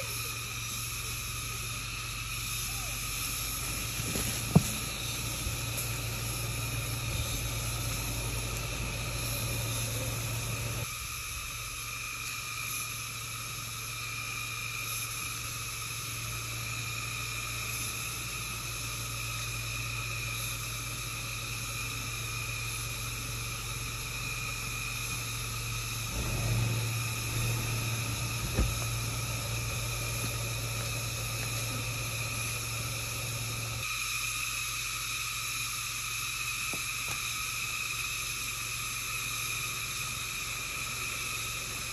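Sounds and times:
car engine humming: 0.0s - 11.9s, 14.8s - 33.9s, 38.3s - 41.9s
forest insects droning: 0.0s - 41.9s.

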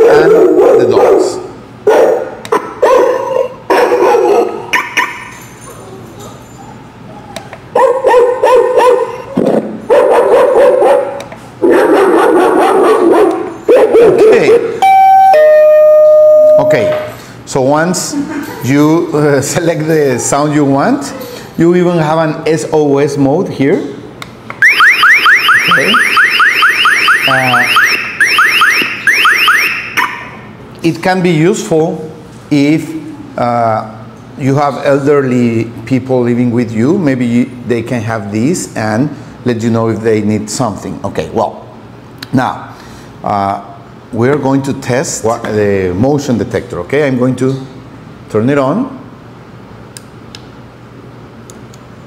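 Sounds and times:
recorded dog barking from speaker: 0.0s - 5.4s, 7.2s - 14.8s
electronic alarm siren: 4.7s - 5.3s, 14.8s - 17.0s, 24.6s - 30.4s.

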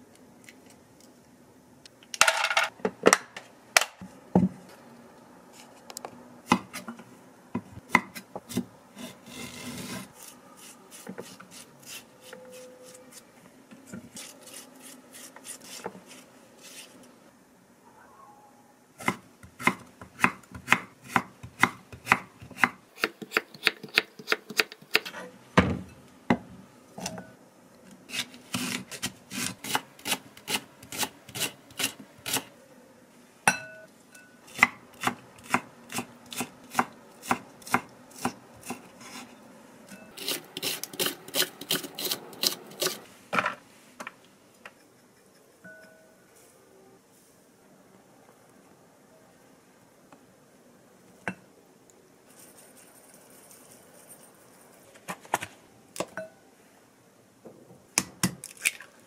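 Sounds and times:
spoon scraping cucumber seeds: 14.1s - 17.1s, 40.0s - 43.1s.

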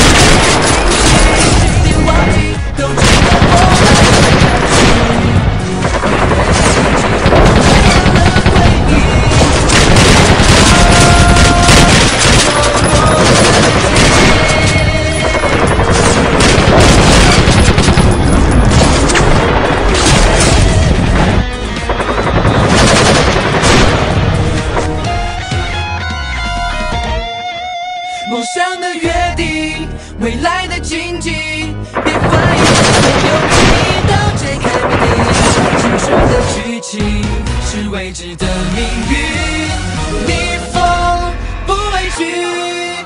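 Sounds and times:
rapid machine-gun fire: 0.0s - 2.4s, 3.0s - 24.9s, 32.0s - 36.6s
background music: 0.0s - 43.0s.

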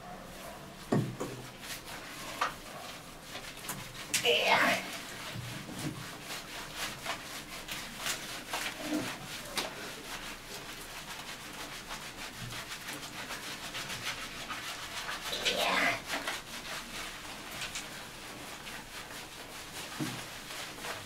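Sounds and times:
hands scrubbing wet fur: 0.1s - 21.0s.

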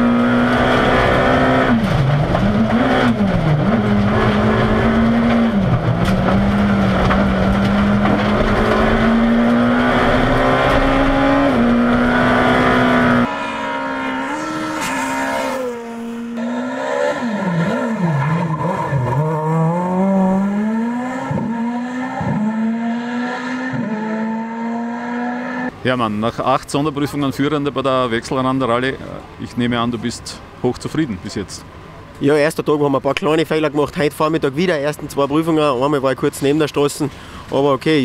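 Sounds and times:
rally car engine high revs: 0.0s - 25.7s
rally car passing revving: 0.0s - 25.8s.

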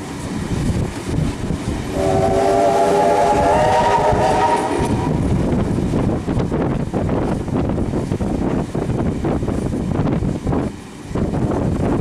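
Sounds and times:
moving train noise: 0.0s - 12.0s
steam locomotive whistle: 1.9s - 5.2s.

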